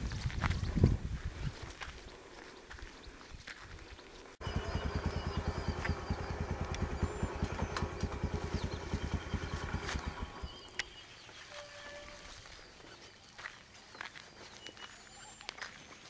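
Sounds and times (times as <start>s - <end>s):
small engine idling: 4.4s - 11.0s.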